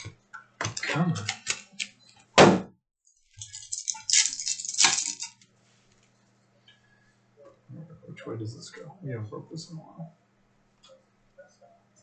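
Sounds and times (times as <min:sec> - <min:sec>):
foil wrappers crinkling: 0:03.4 - 0:05.4
wrapper ripping: 0:03.4 - 0:05.4.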